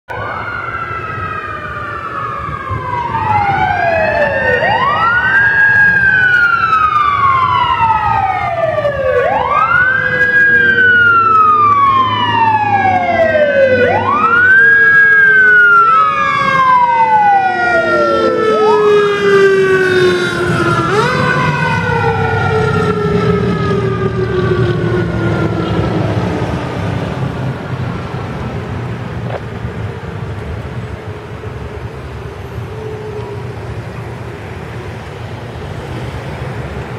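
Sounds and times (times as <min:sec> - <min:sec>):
emergency sirens wailing: 0:00.1 - 0:36.9
truck engine rumble: 0:00.1 - 0:36.9.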